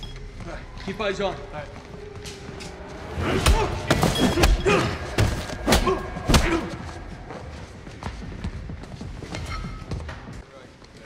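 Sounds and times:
men grunting: 0:03.1 - 0:07.1.

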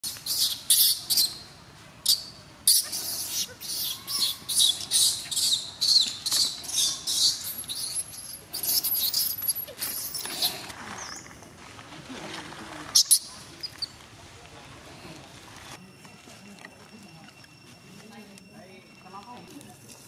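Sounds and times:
baby monkey squeaking: 0:00.0 - 0:10.6, 0:13.0 - 0:14.0.

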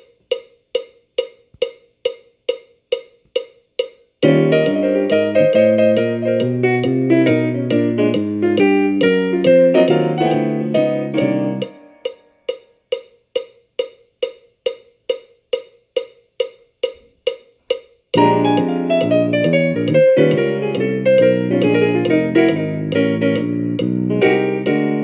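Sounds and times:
steady metronome click: 0:00.0 - 0:25.0
jazz piano: 0:04.2 - 0:12.0, 0:18.2 - 0:25.0.

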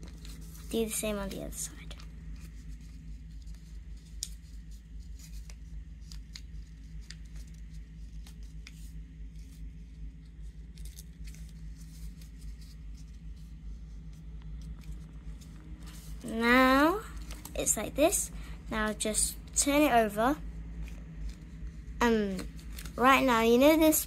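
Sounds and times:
paper crinkling: 0:00.0 - 0:17.6, 0:20.7 - 0:24.0
steady low hum: 0:00.0 - 0:24.0.

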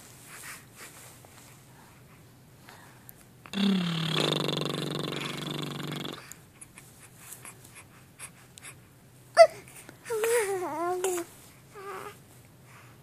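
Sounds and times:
baby grunting: 0:03.6 - 0:06.3.

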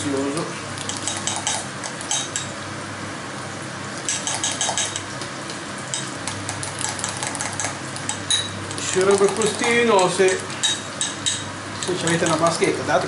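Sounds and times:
fork clinking against glass: 0:01.0 - 0:02.5, 0:04.1 - 0:05.0, 0:08.1 - 0:08.6, 0:09.6 - 0:12.4.

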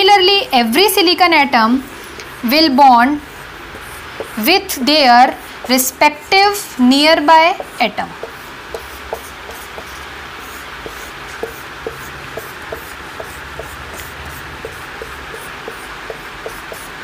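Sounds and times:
marker squeaking on whiteboard: 0:07.5 - 0:17.0.

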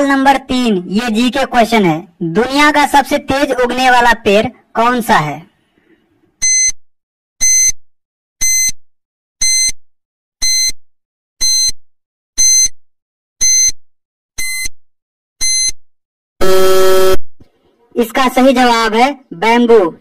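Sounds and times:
short high-pitched timer beeps: 0:06.4 - 0:06.8, 0:07.4 - 0:07.8, 0:08.4 - 0:08.8, 0:09.4 - 0:09.8, 0:10.4 - 0:10.8, 0:11.4 - 0:11.8, 0:12.4 - 0:12.8, 0:13.4 - 0:13.8, 0:14.4 - 0:14.8, 0:15.4 - 0:15.8.

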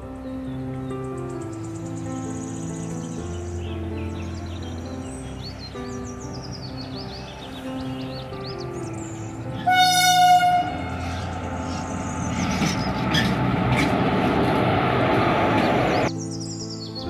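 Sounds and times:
train rumbling past: 0:02.2 - 0:16.2
locomotive air horn: 0:09.6 - 0:11.2.

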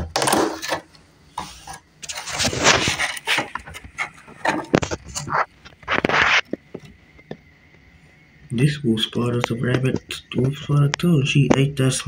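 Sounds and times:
plastic containers scraping: 0:00.0 - 0:07.0.

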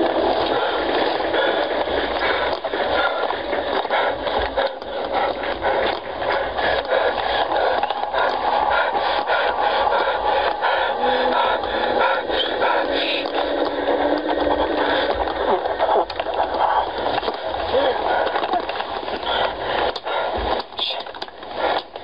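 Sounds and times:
crackling scraping noise: 0:00.0 - 0:22.0
small irregular clicks and knocks: 0:12.4 - 0:22.0.

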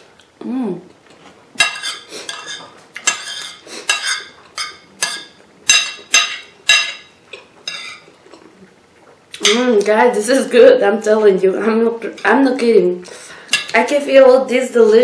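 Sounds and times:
spoon scraping ceramic plate: 0:01.6 - 0:07.1, 0:07.7 - 0:08.1.

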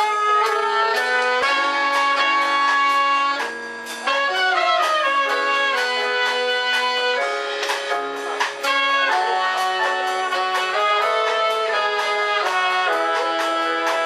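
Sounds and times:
live band playing: 0:00.0 - 0:14.0
saxophone and trumpet held notes: 0:00.0 - 0:14.0.

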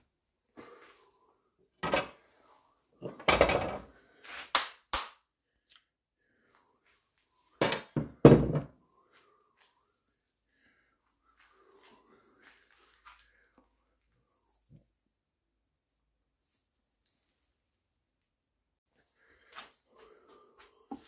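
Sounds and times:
tools knocking and clinking on workbench: 0:01.8 - 0:02.2, 0:07.6 - 0:08.8.

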